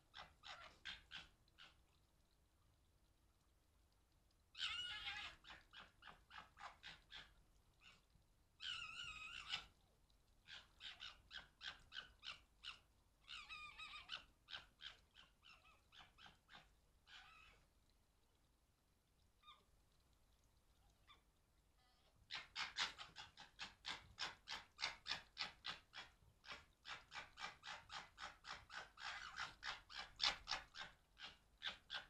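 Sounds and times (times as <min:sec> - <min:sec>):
fox wailing call: 0:04.6 - 0:09.7, 0:10.5 - 0:17.6
foxes chattering: 0:04.6 - 0:09.8, 0:10.5 - 0:17.6.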